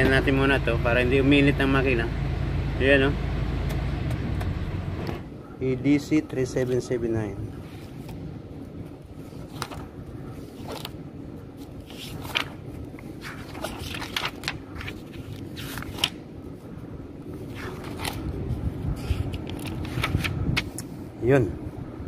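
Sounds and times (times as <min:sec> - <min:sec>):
low background rumble: 0:00.0 - 0:22.0
paper pages flipping: 0:07.6 - 0:08.2, 0:09.2 - 0:16.3, 0:17.3 - 0:20.9.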